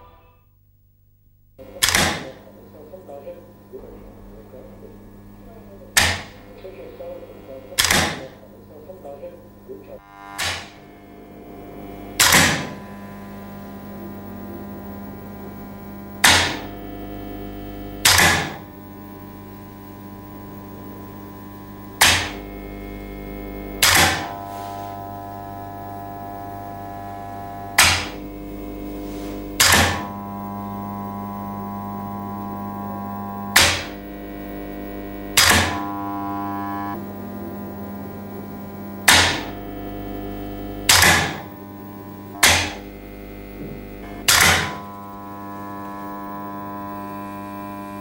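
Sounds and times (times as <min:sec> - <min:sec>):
electric hum drone: 0:00.0 - 0:48.0
sharp snapping hits: 0:01.8 - 0:02.4, 0:06.0 - 0:06.7, 0:07.8 - 0:08.4, 0:10.4 - 0:10.8, 0:12.2 - 0:12.8, 0:16.2 - 0:16.7, 0:18.0 - 0:18.6, 0:22.0 - 0:22.4, 0:23.8 - 0:24.4, 0:27.8 - 0:28.2, 0:29.6 - 0:30.1, 0:33.5 - 0:34.0, 0:35.4 - 0:35.8, 0:39.0 - 0:39.6, 0:40.9 - 0:41.6, 0:42.4 - 0:42.8, 0:44.1 - 0:44.8.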